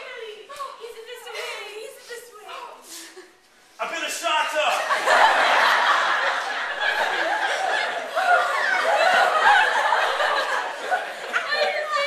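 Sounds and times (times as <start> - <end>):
people talking: 0.0 - 3.1, 7.4 - 12.0
people laughing: 4.7 - 12.0.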